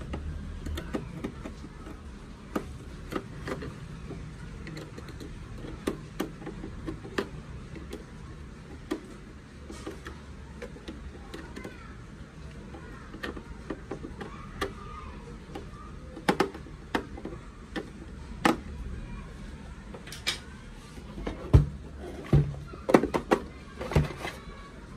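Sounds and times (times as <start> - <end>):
sharp plastic clicks and knocks: 0.0 - 11.8, 12.8 - 18.8
hollow plastic thuds: 13.1 - 18.7, 21.2 - 24.4.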